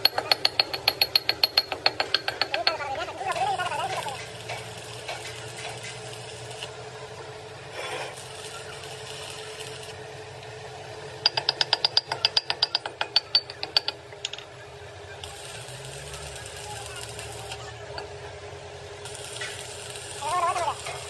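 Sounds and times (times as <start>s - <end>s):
sharp ringing taps on metal: 0.0s - 2.8s, 11.2s - 14.4s.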